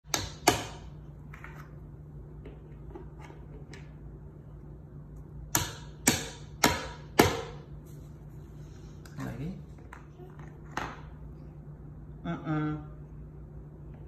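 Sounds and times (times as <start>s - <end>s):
wooden mallet knocking pegs: 0.0s - 0.8s, 5.5s - 7.6s.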